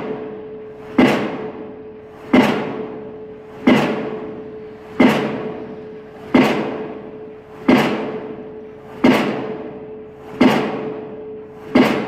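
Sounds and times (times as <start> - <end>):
pile hammer blows ringing: 0.0 - 12.0.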